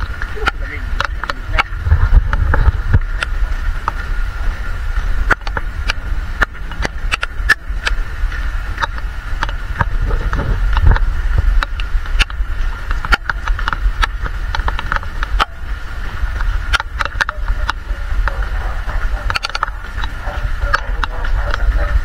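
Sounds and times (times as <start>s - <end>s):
wind rumble on microphone: 0.0s - 22.0s
sharp clicks: 8.8s - 15.6s.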